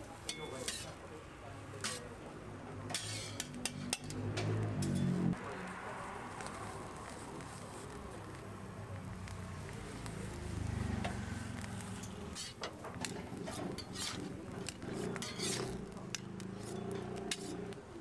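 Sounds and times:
metal utensils scraping griddle: 0:00.2 - 0:01.0, 0:01.7 - 0:05.4, 0:11.0 - 0:17.8.

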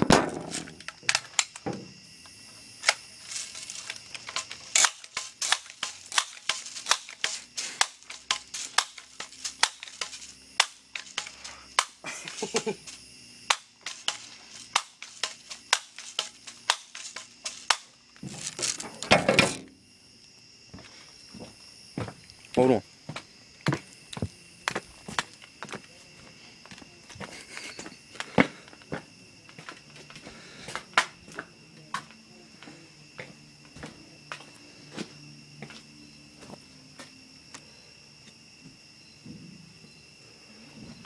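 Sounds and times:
night insects trilling: 0:00.0 - 0:41.0
rustling burst: 0:02.8 - 0:13.0.

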